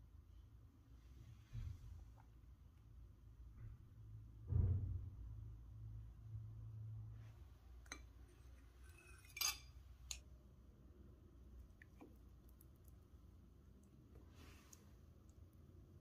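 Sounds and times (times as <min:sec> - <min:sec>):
kitchenware clinking and tapping: 0:07.8 - 0:10.2.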